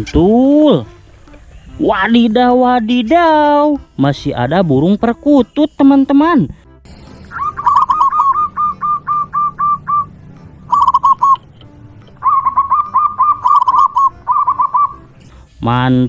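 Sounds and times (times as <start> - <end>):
dove cooing: 7.0 - 11.5, 12.2 - 15.1.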